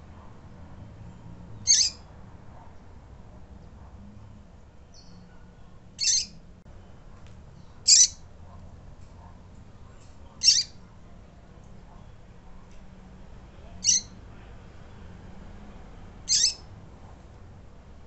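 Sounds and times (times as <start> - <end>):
bird high-pitched peeps: 1.6 - 2.0, 6.0 - 6.4, 7.6 - 8.2, 10.4 - 10.8, 13.8 - 14.2, 16.3 - 16.7.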